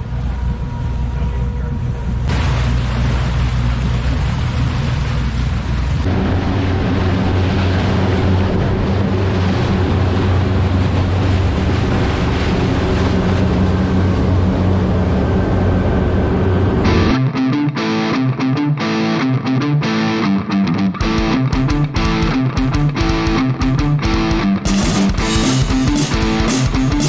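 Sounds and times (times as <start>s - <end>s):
wind: 0.0s - 16.9s
churning water and spray: 0.0s - 17.2s, 21.0s - 27.0s
boat engine droning: 0.0s - 20.4s, 21.0s - 27.0s.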